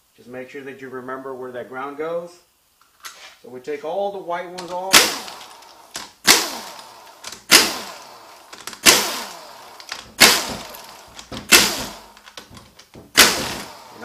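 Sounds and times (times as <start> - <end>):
impact wrench bursts with falling whine: 4.6 - 14.0.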